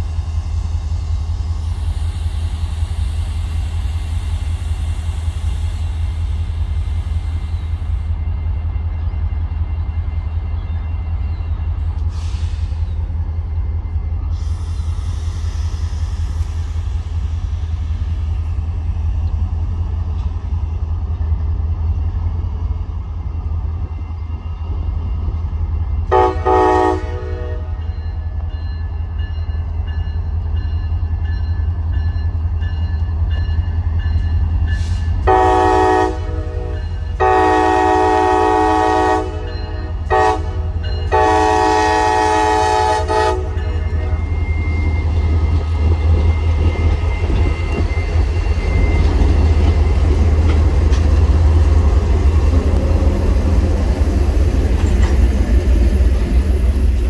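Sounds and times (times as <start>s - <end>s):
train wheels on rails: 0.0s - 57.0s
train horn blasts: 26.1s - 27.9s, 35.2s - 44.4s.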